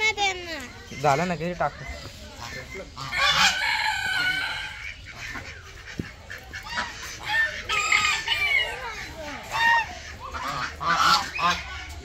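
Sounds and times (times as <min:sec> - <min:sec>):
fowl calling loudly: 0:02.4 - 0:12.0.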